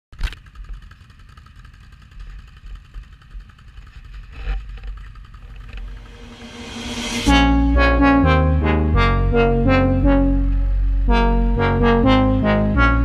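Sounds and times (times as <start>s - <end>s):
atv engines idling: 0.3s - 5.8s
loud bump: 5.5s - 9.2s.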